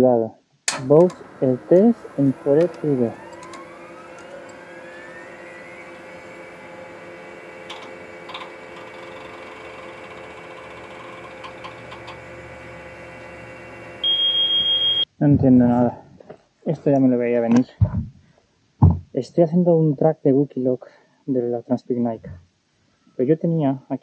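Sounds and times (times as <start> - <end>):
electronic whirring hum: 0.7 - 15.1
high electronic beep: 14.0 - 15.1.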